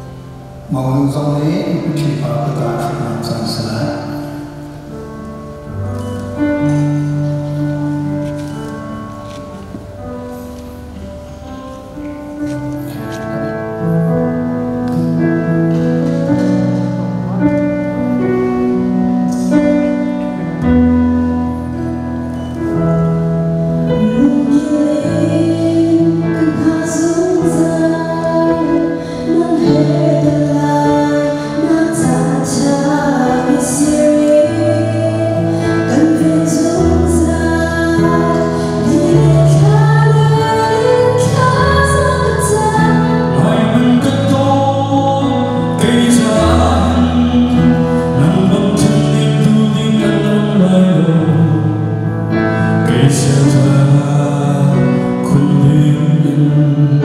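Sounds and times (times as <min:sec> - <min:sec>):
man singing: 0:00.6 - 0:04.6, 0:42.8 - 0:57.0
woman singing: 0:23.9 - 0:51.6.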